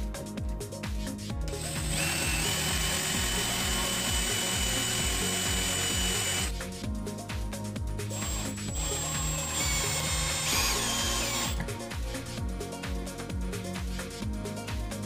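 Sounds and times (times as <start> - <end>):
background music with beat: 0.0 - 15.0
cordless drill whining: 1.5 - 6.6, 8.1 - 11.7.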